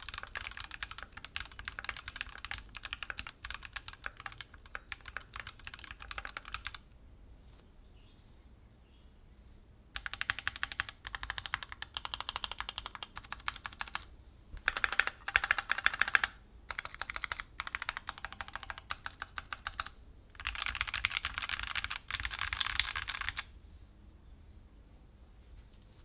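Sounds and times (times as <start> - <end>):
mechanical keyboard typing: 0.0 - 6.9, 10.0 - 23.5.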